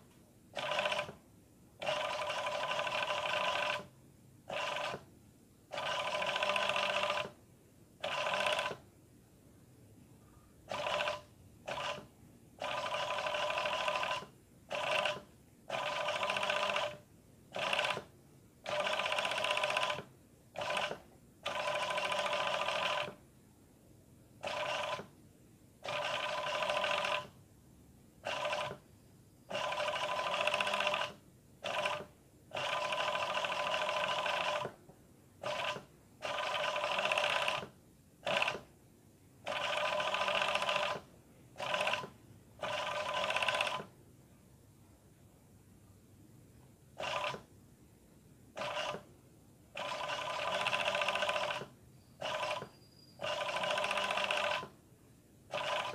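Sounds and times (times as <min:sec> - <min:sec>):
sewing machine whining: 0:00.6 - 0:01.2, 0:01.8 - 0:03.9, 0:04.5 - 0:05.0, 0:05.7 - 0:07.4, 0:08.0 - 0:08.8, 0:10.7 - 0:23.2, 0:24.4 - 0:25.1, 0:25.8 - 0:27.4, 0:28.2 - 0:28.8, 0:29.5 - 0:34.8, 0:35.4 - 0:38.7, 0:39.4 - 0:43.9, 0:47.0 - 0:47.5, 0:48.6 - 0:49.1, 0:49.7 - 0:54.8, 0:55.5 - 0:55.9.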